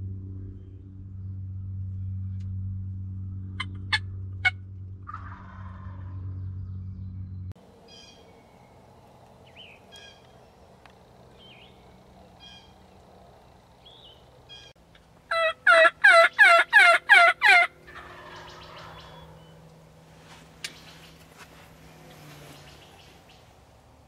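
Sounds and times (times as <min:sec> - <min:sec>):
turkey calling: 0:03.6 - 0:06.2, 0:07.8 - 0:08.8, 0:09.5 - 0:10.4, 0:11.0 - 0:19.7.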